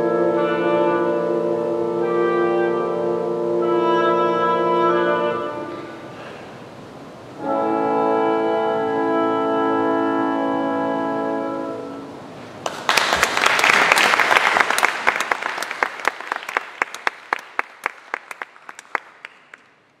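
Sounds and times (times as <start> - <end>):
clarinet: 0.0 - 6.2, 7.4 - 12.3
oboe: 0.0 - 6.2, 7.4 - 12.2
bassoon: 0.0 - 6.5, 7.4 - 12.3
horn: 0.0 - 6.5, 7.4 - 12.5
audience applauding: 12.6 - 20.0.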